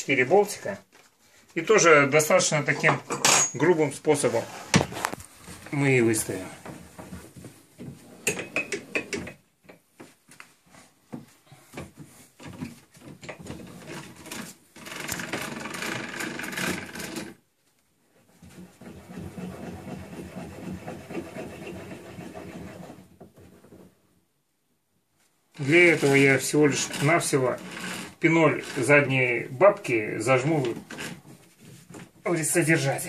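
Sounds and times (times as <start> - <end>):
metal scraping and rubbing: 25.6 - 29.4.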